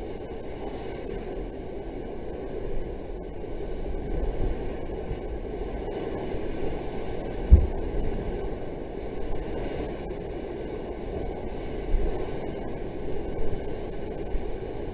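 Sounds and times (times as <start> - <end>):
wind on microphone: 2.5 - 14.9
rough sea surf: 3.7 - 14.9
low thuds: 7.5 - 7.9.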